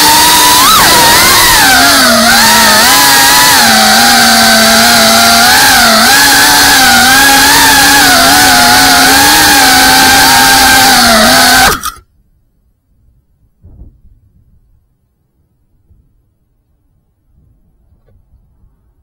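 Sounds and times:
drone motors and propellers whining: 0.0s - 12.0s.

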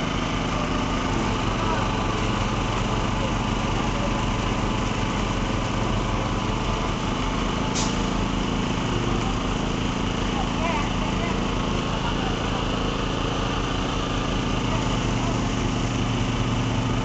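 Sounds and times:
small engine running: 0.0s - 17.0s
sharp hiss: 7.7s - 8.1s.

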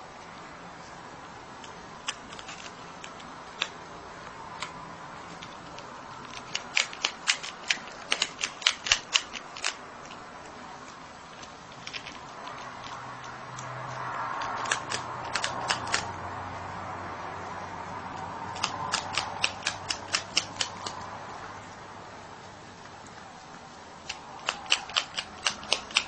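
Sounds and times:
marmot crunching food: 1.6s - 16.1s, 18.1s - 21.1s, 22.8s - 26.0s.

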